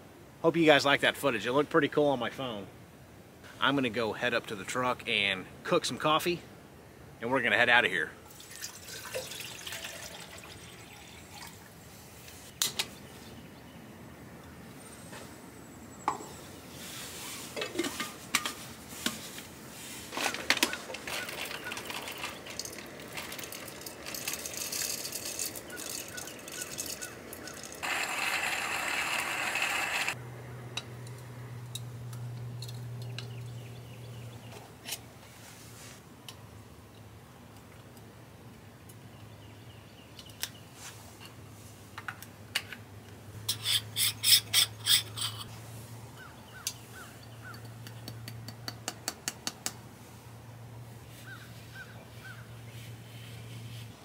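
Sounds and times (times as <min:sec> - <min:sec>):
water pouring: 0:08.3 - 0:11.8, 0:21.2 - 0:29.6.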